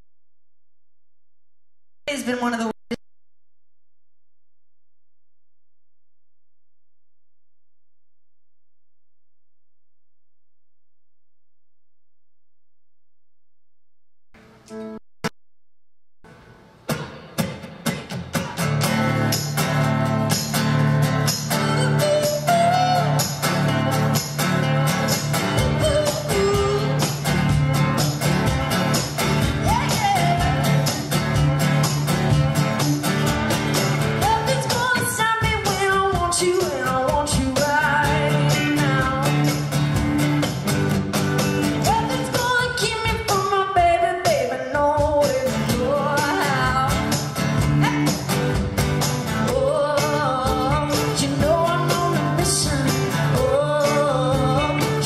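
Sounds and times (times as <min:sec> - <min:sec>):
acoustic guitar: 0:14.4 - 0:15.0, 0:16.3 - 0:55.0
electric guitar: 0:16.3 - 0:43.6, 0:45.3 - 0:55.0
cajon beat: 0:21.4 - 0:55.0
woman singing lead vocal: 0:24.6 - 0:27.2, 0:29.6 - 0:31.0, 0:34.2 - 0:39.6, 0:41.8 - 0:47.2, 0:49.4 - 0:55.0.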